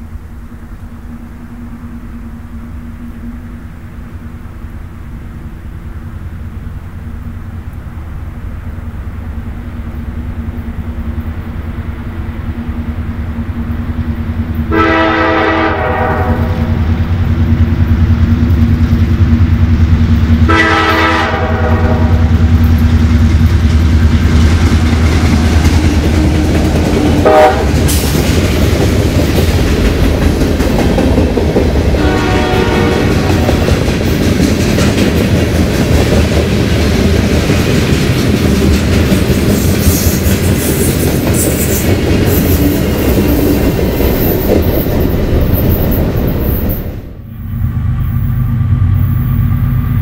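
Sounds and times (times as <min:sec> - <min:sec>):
diesel locomotive engine rumble: 0:00.0 - 0:50.0
train cars clacking over rails: 0:12.8 - 0:47.2
locomotive air horn: 0:14.7 - 0:16.8, 0:20.5 - 0:22.3, 0:27.2 - 0:28.1, 0:32.0 - 0:33.7.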